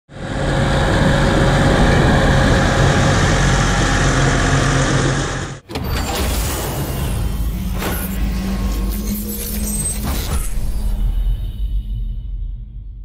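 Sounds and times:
tractor diesel engine running: 0.1 - 5.6.

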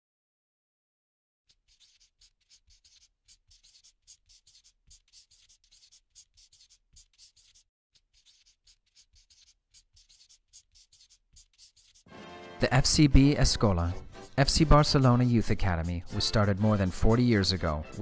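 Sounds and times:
marker nib scratching: 1.5 - 18.0.

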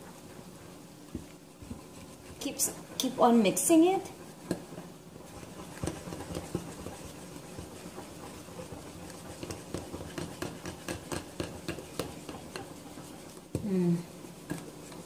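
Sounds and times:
whisk stirring batter: 0.0 - 15.0.

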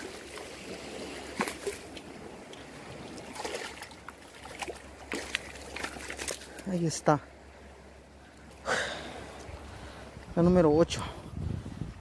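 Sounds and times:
fish splashing in water: 3.0 - 6.6.

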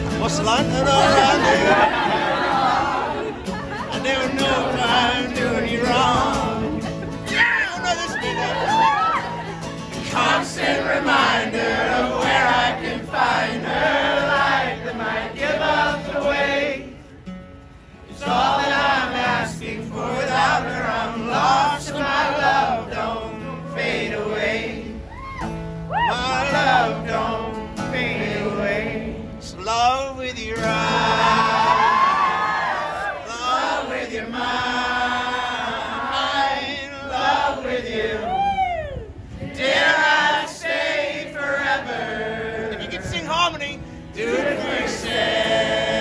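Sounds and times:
strummed acoustic guitar: 0.0 - 32.0
men singing in harmony: 0.7 - 7.4, 10.0 - 17.0, 18.2 - 25.1, 26.1 - 29.6, 30.4 - 38.3, 39.5 - 43.2, 44.2 - 46.0.

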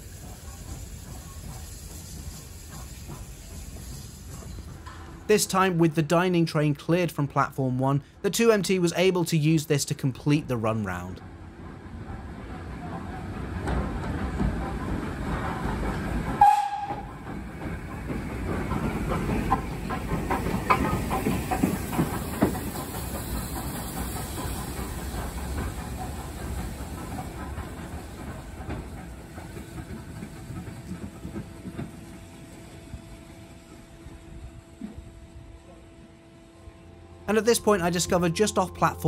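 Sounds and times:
steam locomotive hissing: 0.0 - 5.9, 12.5 - 36.7
wheels clicking over rail joints: 12.0 - 33.8.

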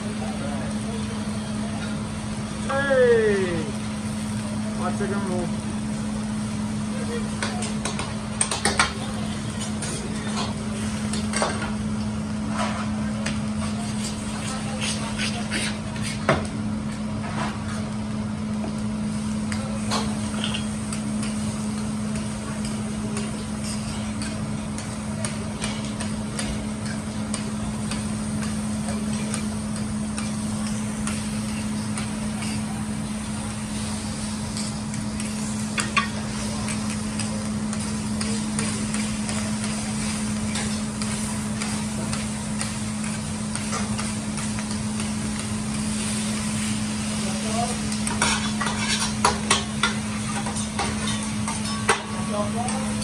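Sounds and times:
food sizzling on a griddle: 0.0 - 16.2, 19.0 - 53.0
metal spatula scraping and tapping: 48.0 - 52.0.

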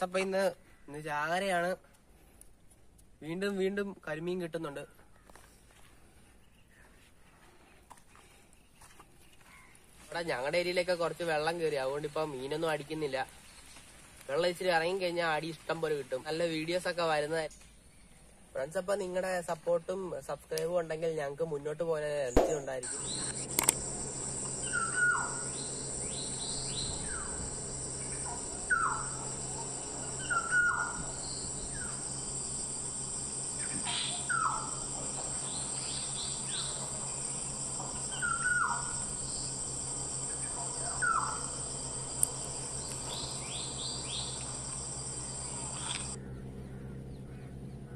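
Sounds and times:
faint low hum: 22.2 - 47.9
bird falling call: 22.4 - 41.7
high bird chirps: 22.4 - 46.2
insect drone: 22.4 - 47.8.

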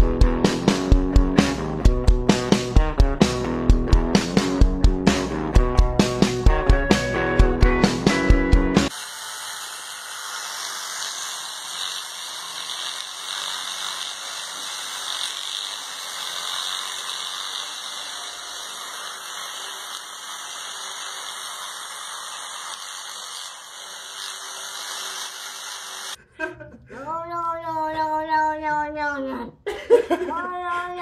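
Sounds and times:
electric toothbrush whirring buzz: 5.8 - 26.2.

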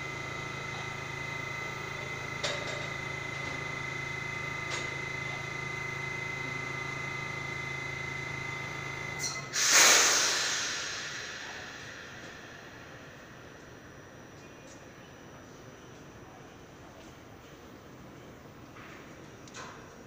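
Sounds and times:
high steady whine: 0.0 - 16.7
electrical hum: 0.0 - 20.0
compressed air hissing: 9.3 - 13.0.

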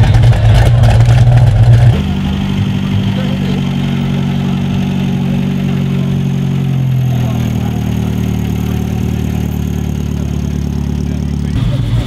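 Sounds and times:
car engine running at low speed: 0.0 - 12.0.

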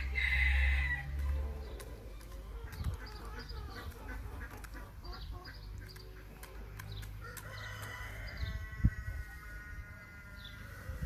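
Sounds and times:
hens clucking: 0.0 - 11.0
beaks clicking on corn kernels: 0.2 - 8.3
wind rumble on microphone: 8.0 - 11.0.

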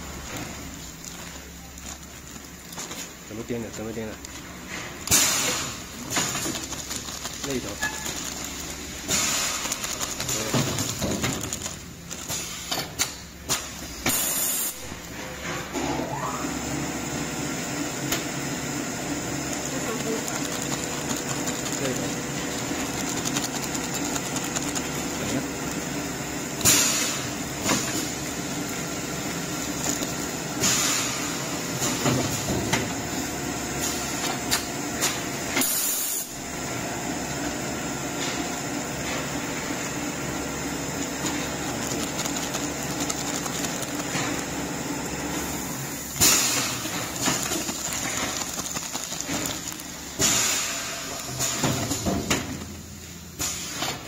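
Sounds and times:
plastic bags crinkling: 0.0 - 4.6, 5.4 - 12.6, 19.1 - 26.4, 27.0 - 31.8, 40.6 - 45.6, 46.4 - 51.9
machine humming and hissing: 4.1 - 54.0.

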